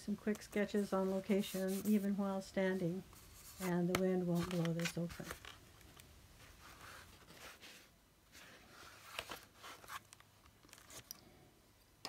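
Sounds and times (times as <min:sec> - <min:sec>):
paper pages rustling: 0:01.0 - 0:02.2, 0:03.1 - 0:11.1.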